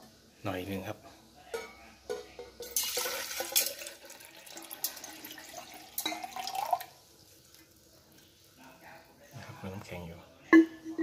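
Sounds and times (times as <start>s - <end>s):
water pouring into steel mug: 2.6s - 8.3s
bottle gurgle: 2.8s - 6.9s.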